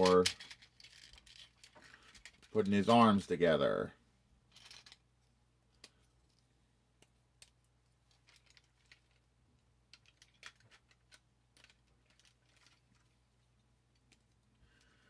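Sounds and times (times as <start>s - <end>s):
plastic toy parts clicking: 0.0s - 2.6s, 4.5s - 5.0s, 9.9s - 13.1s.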